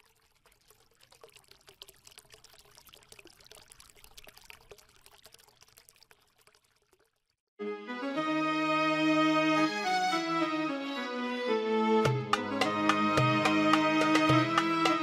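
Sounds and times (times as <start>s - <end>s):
fine crackling and trickling: 0.0s - 7.5s.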